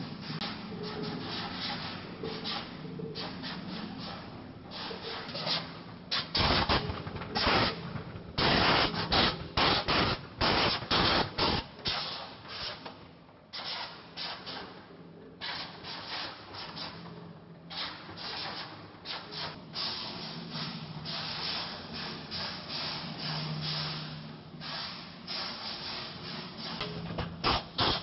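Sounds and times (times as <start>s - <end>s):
machine hum: 0.0s - 11.6s
loud irregular noise bursts: 0.0s - 11.7s.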